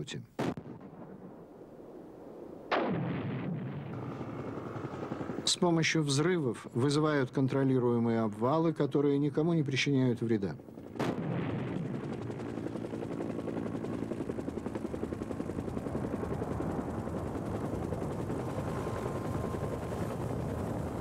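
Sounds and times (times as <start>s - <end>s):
helicopter rotor chopping: 4.0s - 6.2s, 10.6s - 21.0s.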